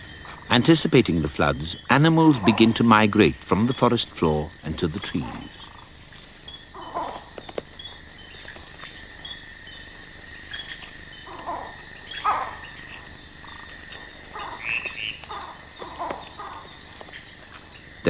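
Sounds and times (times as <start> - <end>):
high-pitched insect trilling: 0.0 - 18.0
falling animal calls: 6.7 - 7.6, 11.2 - 17.2.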